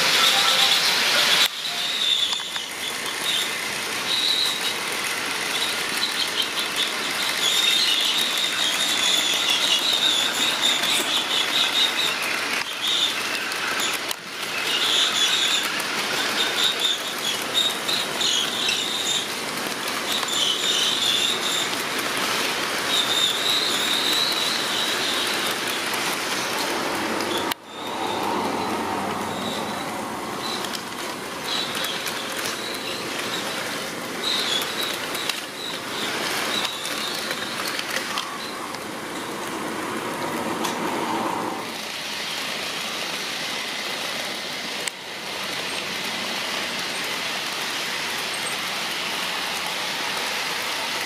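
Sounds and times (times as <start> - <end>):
high wheel squeal: 0.0 - 39.5
model train wheels rolling: 0.0 - 51.0.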